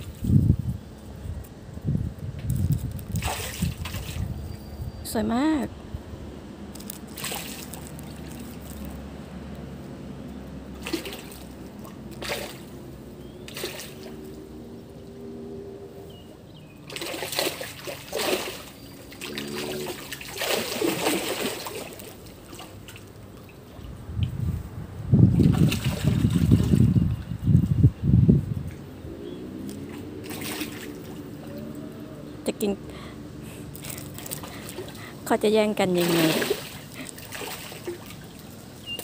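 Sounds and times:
fish splashing at water surface: 2.6 - 4.4, 6.8 - 9.0, 10.7 - 14.4, 16.8 - 23.9, 25.4 - 26.9, 29.6 - 31.6, 33.6 - 35.2, 35.9 - 39.0
water lapping gently: 6.8 - 9.0, 10.6 - 14.4, 16.8 - 24.1, 29.6 - 39.0.

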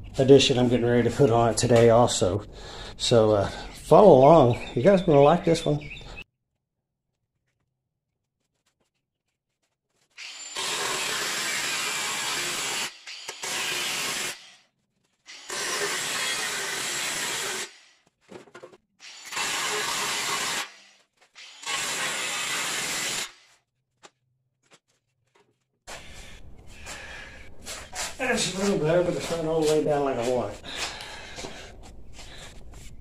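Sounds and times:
angle grinder cutting sheet steel: 10.2 - 14.6, 15.3 - 17.9, 19.0 - 23.5.

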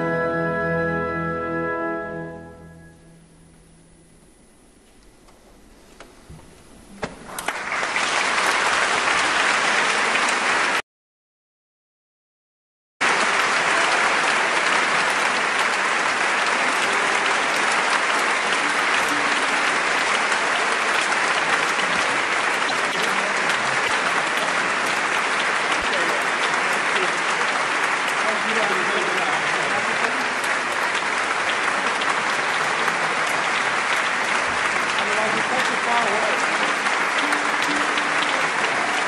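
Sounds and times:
audience applauding: 7.2 - 10.8, 13.0 - 39.0.

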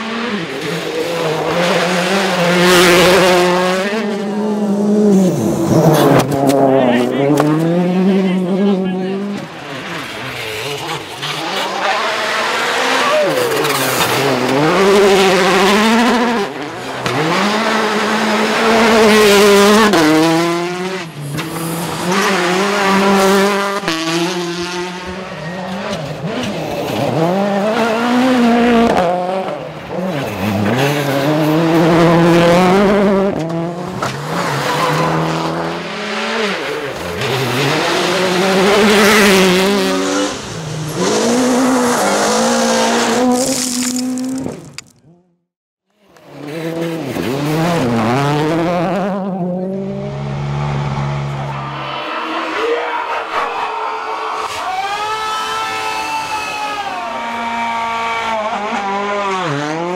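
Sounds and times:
rally car engines revving: 0.0 - 45.2, 46.0 - 59.9
tyres hissing on gravel: 43.3 - 44.8.

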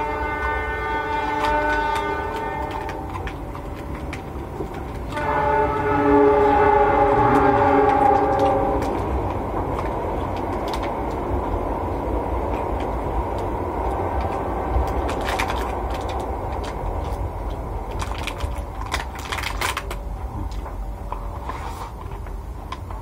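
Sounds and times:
plastic food box crinkling: 0.0 - 5.3, 12.5 - 23.0
loud low background noise: 0.0 - 23.0.

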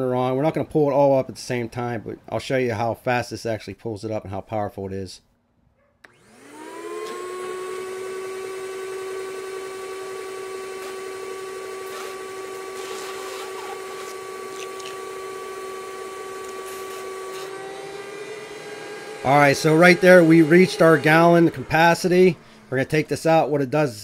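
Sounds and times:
wet dry vacuum motor whine: 6.0 - 24.0
vacuum sucking water: 6.1 - 23.9.

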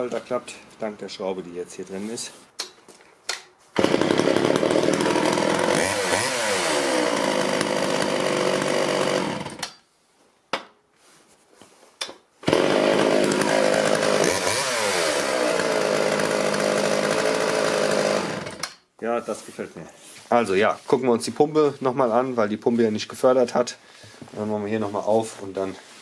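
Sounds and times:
chainsaw running: 3.8 - 9.6, 12.4 - 18.8
chainsaw pull-starting: 3.8 - 9.8, 12.4 - 18.8.

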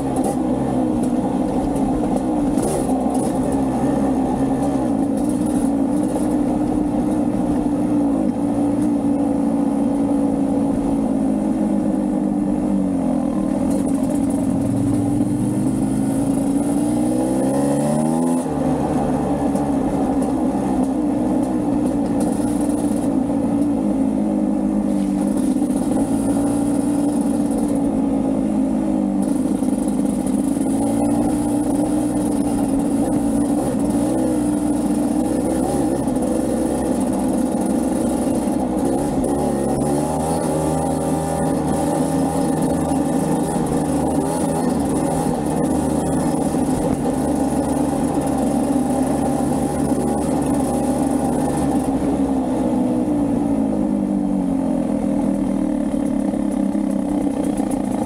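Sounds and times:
dirt bike engine revving: 13.7 - 19.8, 30.6 - 52.0.

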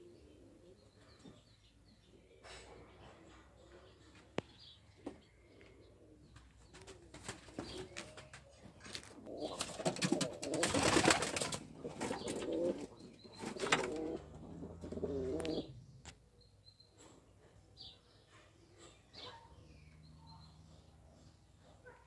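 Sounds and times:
pigeons cooing: 0.0 - 16.1.

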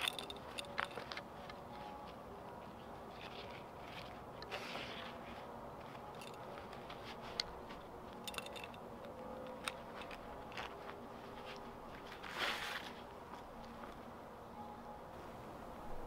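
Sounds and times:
belt and sheath clicking: 0.0 - 1.6, 5.8 - 12.9
rustle of belt: 0.0 - 8.8, 9.7 - 13.4.

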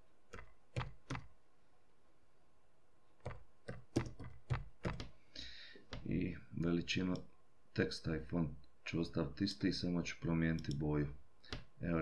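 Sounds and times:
computer keyboard taps: 3.2 - 5.1.

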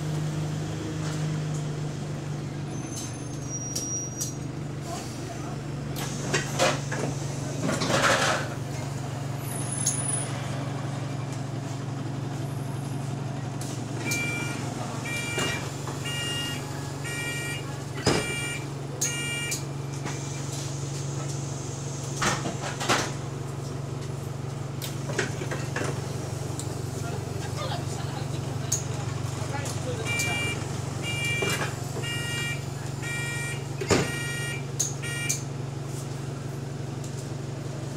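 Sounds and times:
bus engine idling: 0.0 - 37.9
door warning beeps: 14.0 - 19.6, 30.0 - 35.4
bus doors knocking open: 14.0 - 20.4, 29.7 - 35.5.

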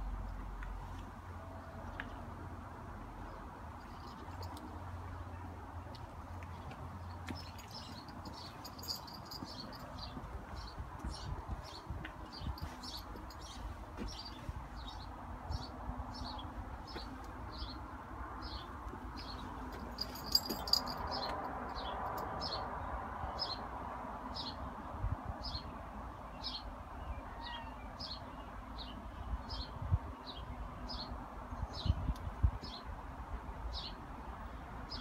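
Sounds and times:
small bird chirping: 7.2 - 11.8.

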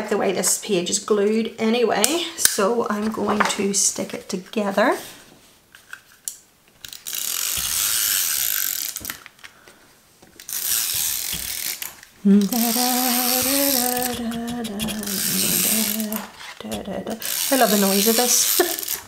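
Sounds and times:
glue tape runner ratcheting: 6.8 - 9.3, 10.4 - 19.0.

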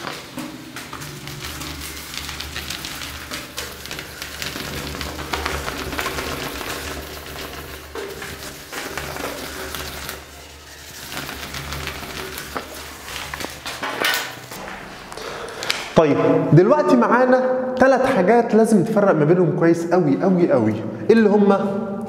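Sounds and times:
eraser rubbing on whiteboard: 1.0 - 13.9.

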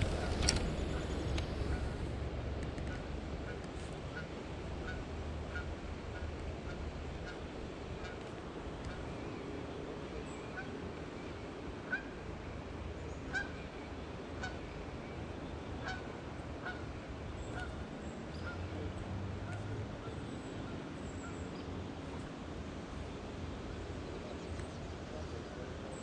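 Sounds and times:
geese honking: 0.0 - 2.1, 13.3 - 13.6, 15.8 - 16.8, 17.5 - 17.8.

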